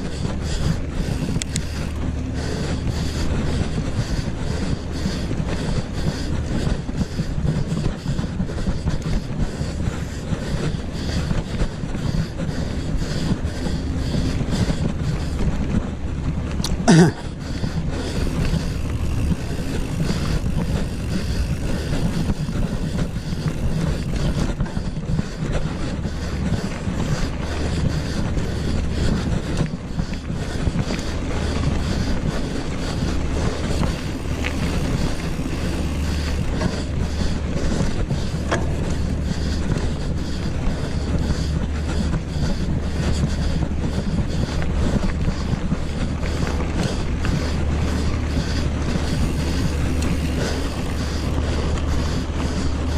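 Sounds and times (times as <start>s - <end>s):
bike tyres rolling over gravel: 0.0s - 52.9s
bike clicks and knocks: 0.1s - 2.0s, 2.7s - 52.9s
wind on microphone: 17.4s - 52.9s.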